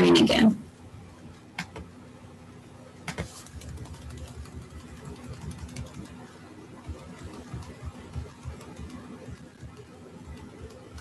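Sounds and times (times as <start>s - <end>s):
steady hum: 0.0s - 11.0s
computer mouse clicking: 3.1s - 11.0s.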